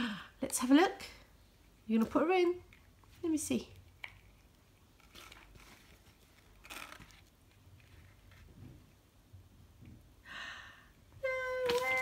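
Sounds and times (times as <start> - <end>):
soft rustle: 1.6 - 10.1
plastic toy handling: 3.8 - 8.5, 11.6 - 12.0.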